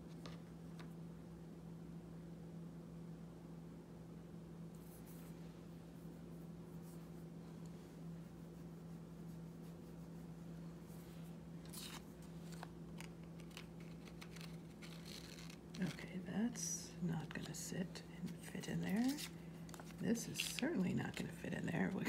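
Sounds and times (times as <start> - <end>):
steady low hum: 0.0 - 22.0
paper rustling and scraping: 11.0 - 16.2, 18.2 - 22.0.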